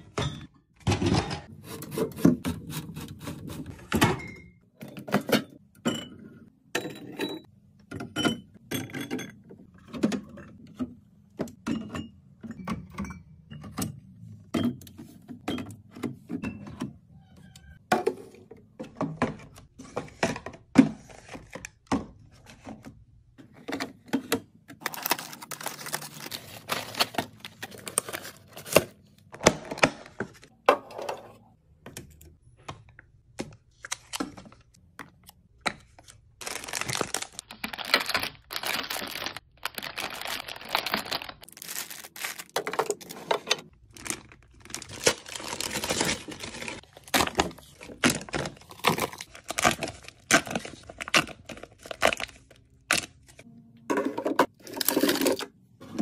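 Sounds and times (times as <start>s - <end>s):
plastic packaging crinkling: 24.8s - 28.7s, 36.4s - 53.1s.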